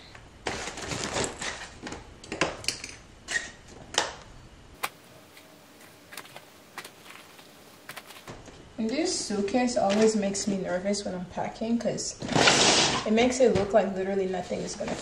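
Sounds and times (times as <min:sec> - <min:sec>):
clothes rustling into suitcase: 0:05.4 - 0:08.3.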